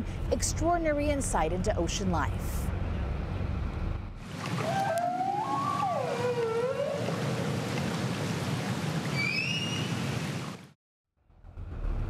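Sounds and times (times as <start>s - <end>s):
low wind rumble: 0.0s - 4.4s
humpback whale call: 4.5s - 7.6s.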